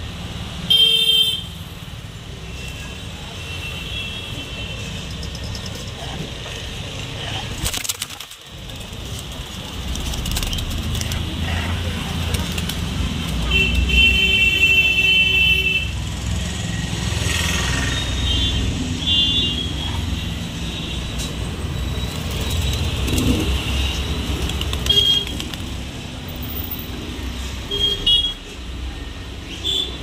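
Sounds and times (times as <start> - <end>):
street traffic: 0.0 - 30.0
vehicle horns honking: 0.7 - 1.6, 27.7 - 28.5.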